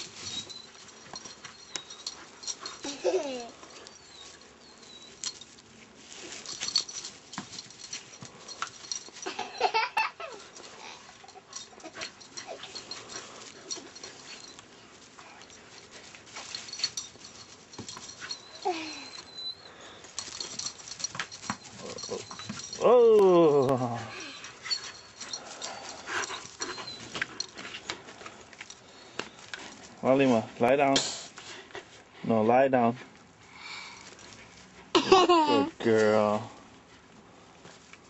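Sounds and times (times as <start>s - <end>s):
dog whining: 1.5s - 5.4s, 18.2s - 20.6s, 24.0s - 27.6s
scuffs and knocks: 20.2s - 23.8s.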